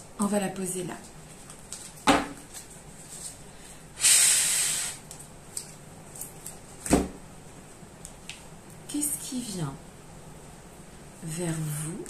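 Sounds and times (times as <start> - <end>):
hiss: 4.0 - 5.0.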